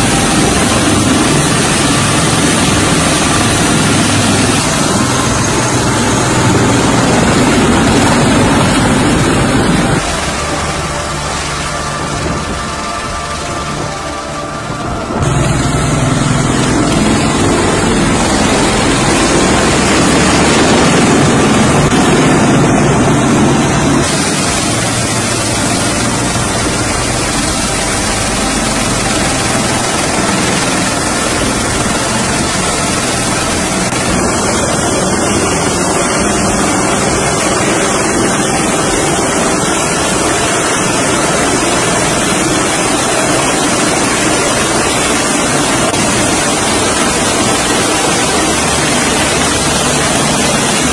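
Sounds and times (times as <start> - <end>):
tiltrotor aircraft engines running: 0.0 - 50.9
wind buffeting microphone: 0.0 - 50.9.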